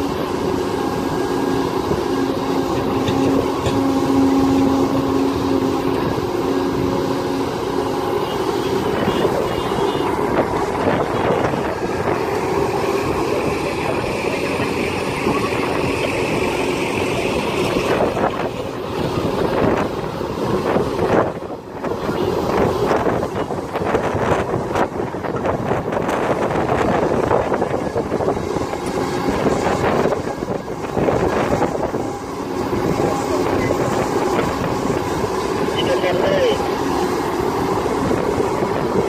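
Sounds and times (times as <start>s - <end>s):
excavator diesel engine: 0.0s - 39.0s.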